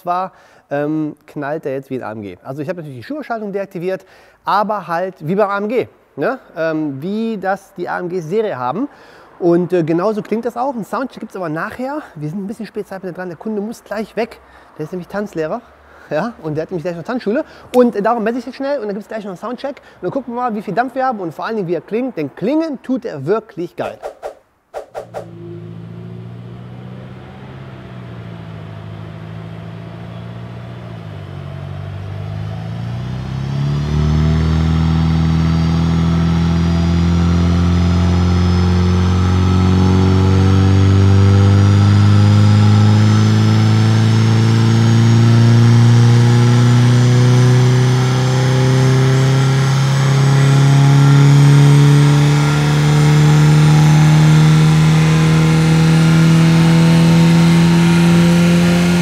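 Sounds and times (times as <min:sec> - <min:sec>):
car engine revving on dynamometer: 0:25.0 - 0:59.0.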